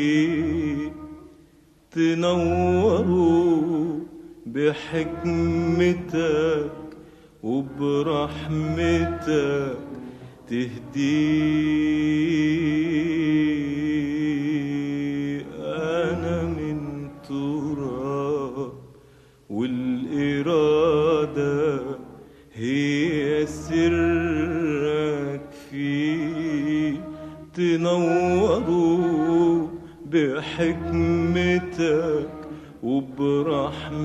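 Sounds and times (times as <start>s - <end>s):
man singing a religious chant: 0.0s - 1.0s, 1.9s - 9.9s, 10.5s - 18.9s, 19.5s - 34.0s
man breathing: 7.0s - 7.4s, 18.9s - 19.5s.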